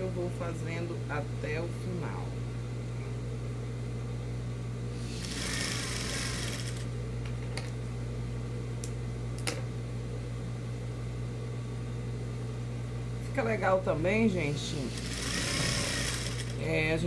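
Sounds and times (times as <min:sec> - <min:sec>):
sewing machine motor hum: 0:05.0 - 0:07.0, 0:14.8 - 0:16.7.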